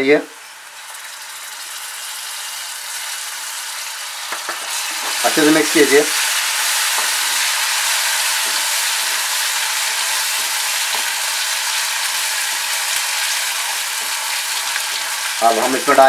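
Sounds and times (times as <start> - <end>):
onions frying in hot oil: 0.0 - 16.0.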